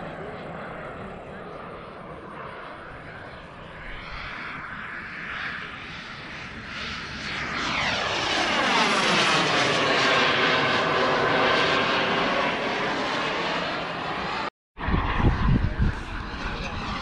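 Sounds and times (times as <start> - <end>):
model jet rushing: 0.0 - 17.0.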